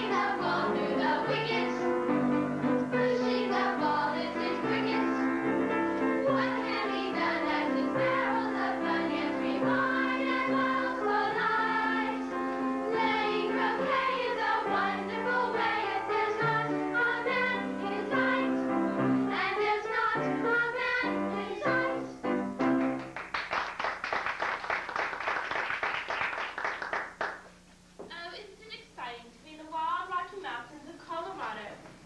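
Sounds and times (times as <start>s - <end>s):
young voices singing with accompaniment: 0.0s - 2.0s, 2.7s - 22.2s
audience clapping: 22.6s - 27.6s.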